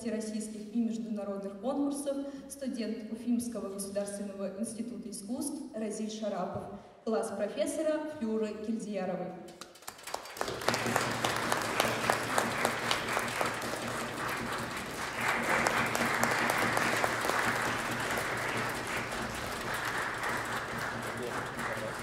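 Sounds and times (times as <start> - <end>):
audience applause: 9.6 - 22.0.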